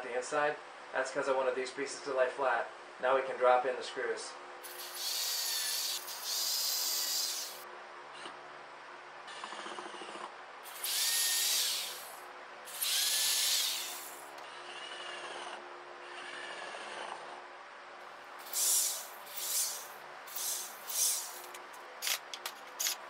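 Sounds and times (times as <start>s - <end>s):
drill driving screws into wood: 4.6s - 7.6s, 10.7s - 14.4s, 18.4s - 23.0s.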